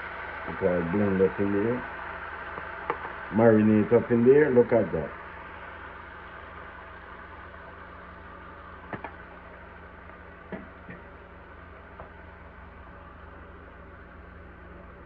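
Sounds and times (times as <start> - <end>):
food simmering in a skillet: 5.1 - 13.2.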